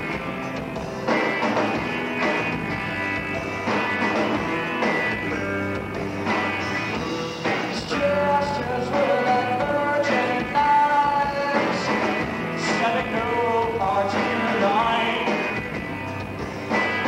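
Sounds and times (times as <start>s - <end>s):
drums: 0.0s - 17.0s
electric bass: 0.0s - 17.0s
person singing: 6.6s - 15.6s.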